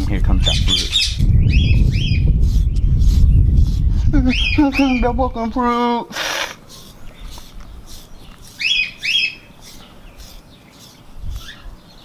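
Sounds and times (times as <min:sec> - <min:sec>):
high falling bird chirps: 0:00.4 - 0:05.2, 0:06.0 - 0:12.0
brush scraping through dog coat: 0:01.8 - 0:04.1, 0:06.2 - 0:11.6.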